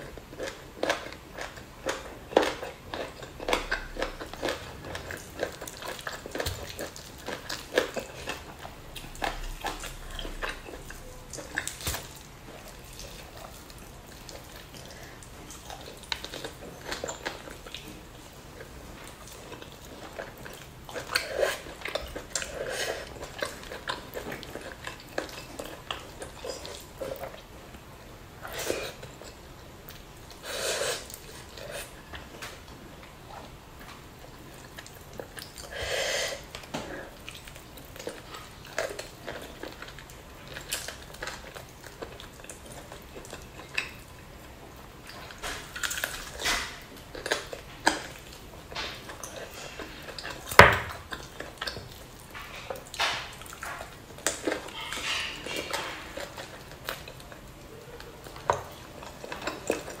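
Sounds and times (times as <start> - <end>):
chewing and lip smacks: 0.1 - 27.8, 36.4 - 60.0
meat tearing: 1.9 - 14.9, 45.2 - 60.0.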